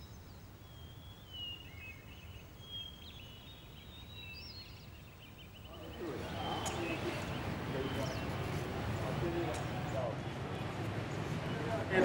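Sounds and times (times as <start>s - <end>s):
bird trill: 0.0s - 8.5s
small birds chirping: 0.0s - 12.0s.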